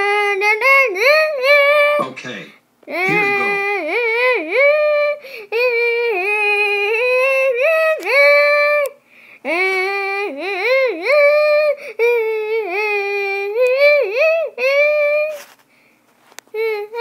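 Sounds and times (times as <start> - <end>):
high-pitched voice singing wordless tune: 2.9 - 15.3.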